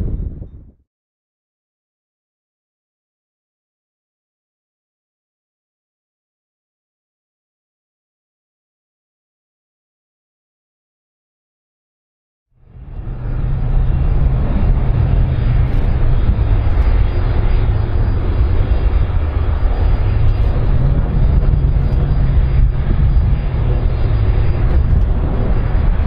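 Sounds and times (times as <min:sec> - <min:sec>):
jet engines rumbling: 0:00.0 - 0:00.7, 0:12.6 - 0:26.0.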